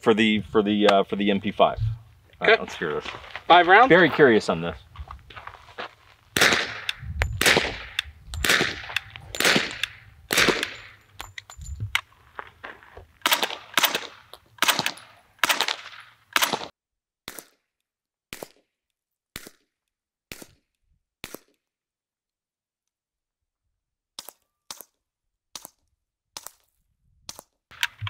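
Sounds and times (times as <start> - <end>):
suppressed gunshots: 6.4 - 11.0, 13.2 - 16.7.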